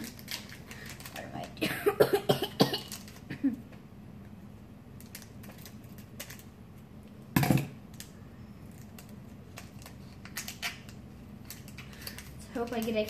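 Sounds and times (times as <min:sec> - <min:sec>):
foil wrapper crinkling: 0:00.0 - 0:01.6, 0:02.8 - 0:03.3, 0:07.9 - 0:13.0.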